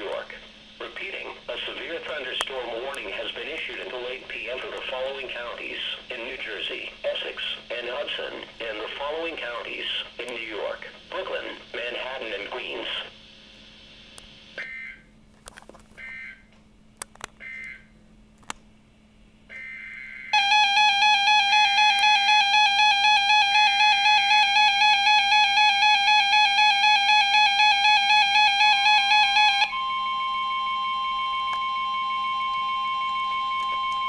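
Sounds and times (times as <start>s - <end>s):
pulsing alert alarm: 19.5s - 34.0s
steady warning tone: 19.5s - 34.0s.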